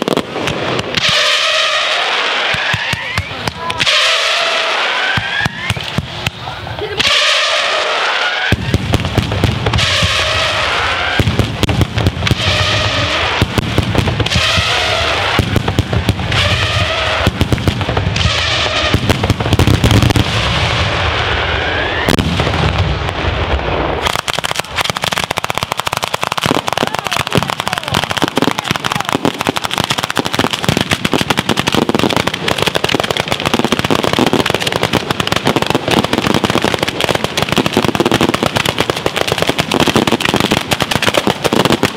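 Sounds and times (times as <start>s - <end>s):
firework bursts and whistles: 0.0s - 22.2s
firecracker crackle: 0.0s - 41.9s.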